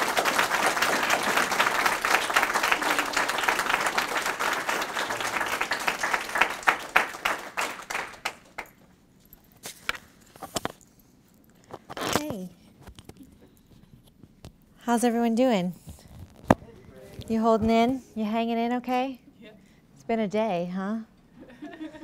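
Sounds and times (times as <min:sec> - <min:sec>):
audience applauding: 0:00.0 - 0:08.8.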